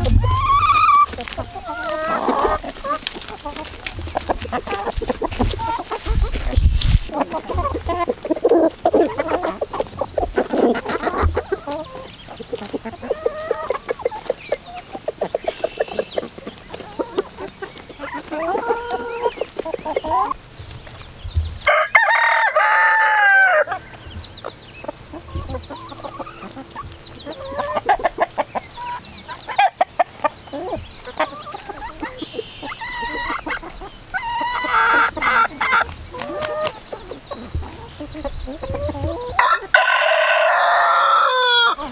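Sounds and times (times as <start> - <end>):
chickens clucking: 0.0 - 41.9
rooster crowing: 21.7 - 23.7, 39.4 - 41.8.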